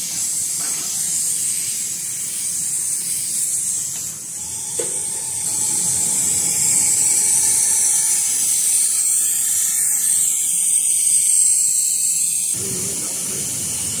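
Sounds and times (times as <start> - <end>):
hot-air blower hissing: 0.0 - 14.0
low mechanical whir: 4.4 - 9.8.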